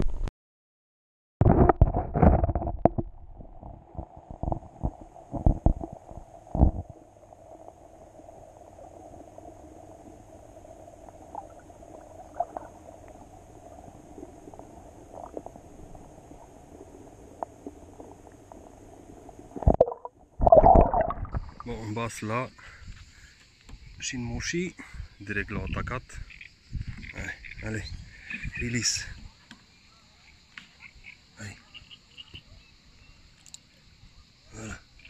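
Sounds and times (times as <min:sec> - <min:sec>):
bumps and sloshing water: 0:01.4 - 0:07.0, 0:11.2 - 0:23.9
faint ticks: 0:16.8 - 0:18.8, 0:22.6 - 0:24.1, 0:33.3 - 0:33.8
muffled underwater murmur: 0:24.8 - 0:29.4.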